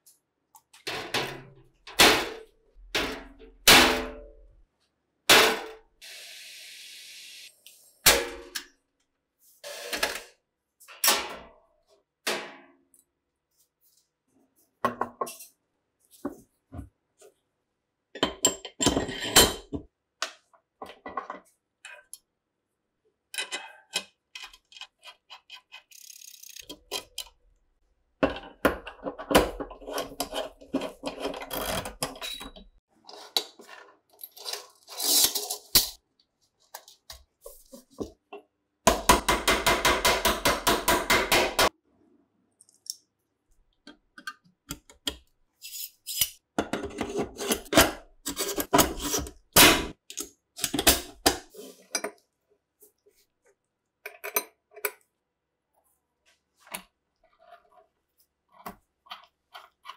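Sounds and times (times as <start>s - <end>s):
metal parts clinking and scraping: 33.2s - 36.0s.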